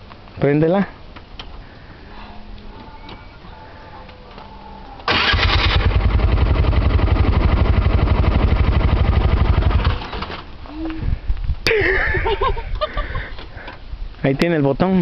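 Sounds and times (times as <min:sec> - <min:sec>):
small engine starting and running: 0:05.1 - 0:10.4.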